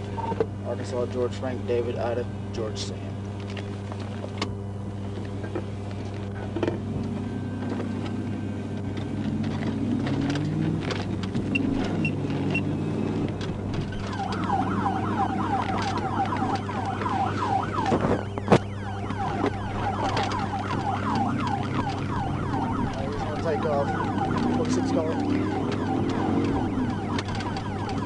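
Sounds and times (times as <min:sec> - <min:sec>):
car accelerating hum: 0:00.0 - 0:28.0
police siren yelping: 0:07.2 - 0:28.0.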